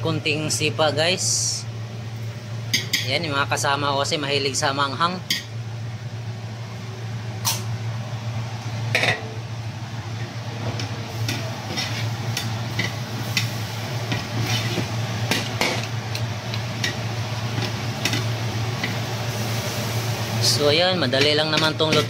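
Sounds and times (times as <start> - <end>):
steady low hum: 0.0 - 22.0
soft sizzle: 0.2 - 22.0
metal ladle scraping a wok: 11.7 - 12.2.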